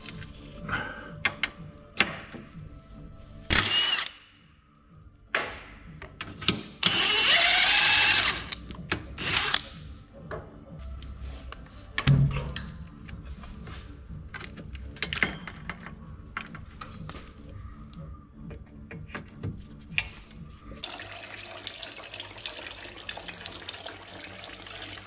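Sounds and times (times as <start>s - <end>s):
power tool whirring: 6.9s - 8.6s.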